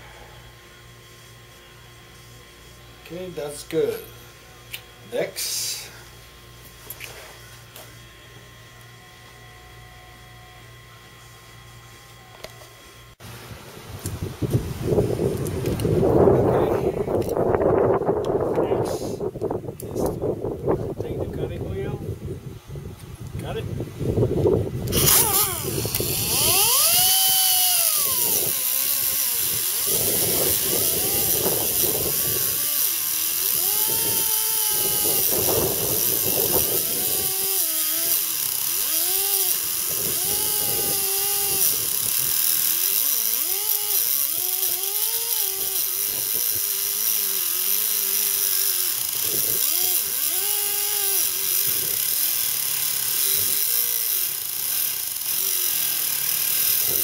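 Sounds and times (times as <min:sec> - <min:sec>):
cut-off wheel grinding steel: 0:24.9 - 0:57.0.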